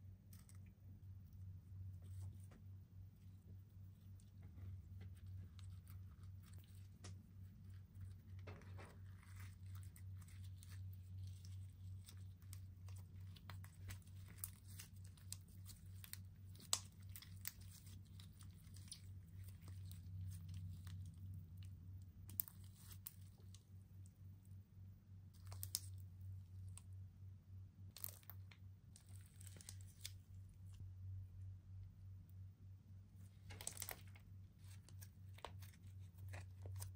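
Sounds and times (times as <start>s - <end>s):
steady low hum: 0.0s - 36.9s
packaging crinkling and tearing: 33.3s - 36.9s.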